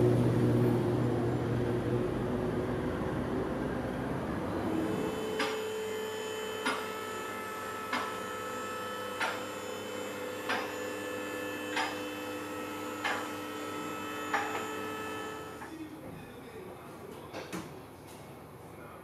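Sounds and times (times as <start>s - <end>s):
hydraulic pump humming: 4.4s - 15.7s.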